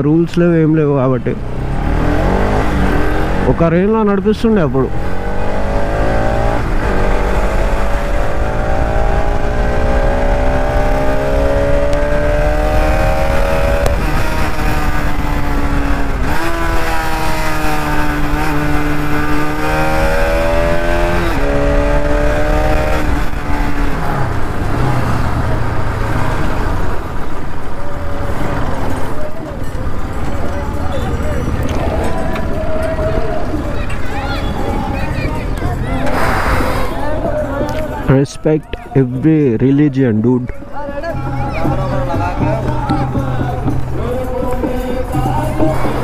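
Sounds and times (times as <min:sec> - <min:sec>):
low wind rumble: 0:00.0 - 0:46.0
motorcycle engine revving: 0:01.4 - 0:38.1.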